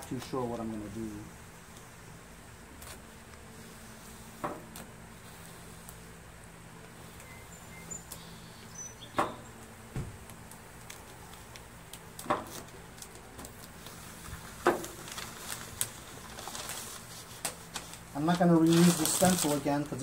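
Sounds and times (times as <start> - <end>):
faint steady hum: 0.0 - 20.0
sharp crackles: 2.6 - 20.0
tape and paper peeling: 2.7 - 6.1, 10.2 - 20.0
dull thump: 9.2 - 10.2.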